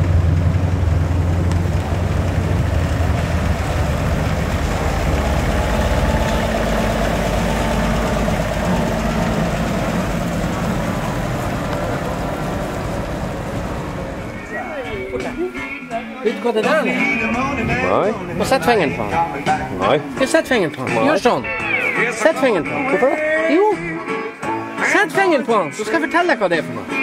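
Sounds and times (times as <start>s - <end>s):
truck engine driving past: 0.0s - 15.2s.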